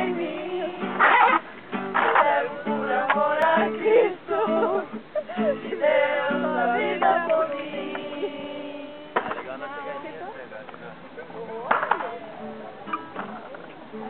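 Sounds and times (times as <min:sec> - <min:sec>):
group singing worship song: 0:00.0 - 0:10.2.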